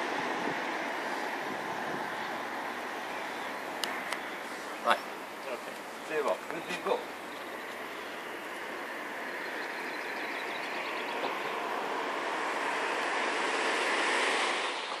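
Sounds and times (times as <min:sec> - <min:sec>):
train rushing noise: 0:07.8 - 0:15.0.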